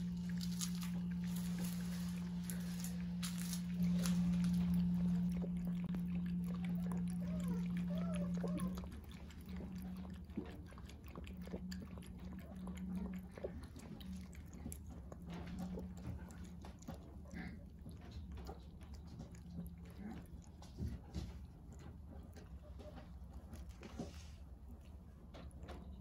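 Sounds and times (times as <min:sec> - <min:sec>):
low hum: 0:00.0 - 0:26.0
puppy lapping water: 0:00.0 - 0:26.0.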